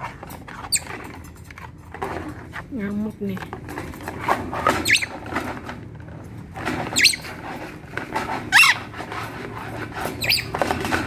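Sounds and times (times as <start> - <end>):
knocks and clatter: 0.0 - 11.0
parrot screeching: 4.8 - 5.2, 6.9 - 7.3, 8.5 - 8.9, 10.2 - 10.6.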